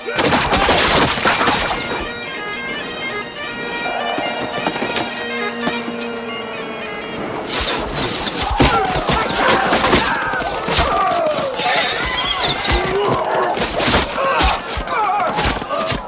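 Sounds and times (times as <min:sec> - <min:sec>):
orchestral score with pipes: 0:00.0 - 0:16.0
arrows whooshing: 0:07.5 - 0:10.0.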